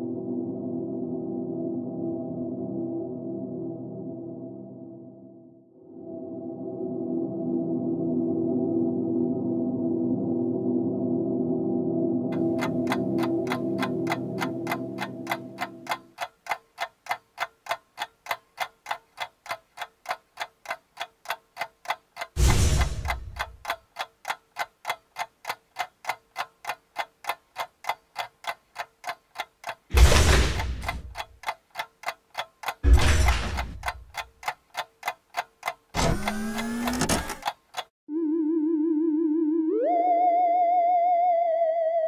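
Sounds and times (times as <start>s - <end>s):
clock ticking: 12.4s - 37.9s
loud noise hits: 22.4s - 23.1s.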